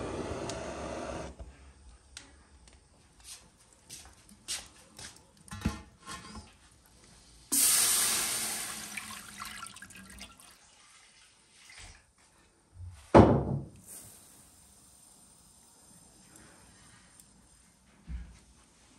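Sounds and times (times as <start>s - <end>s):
water pouring and splashing: 7.6s - 12.1s.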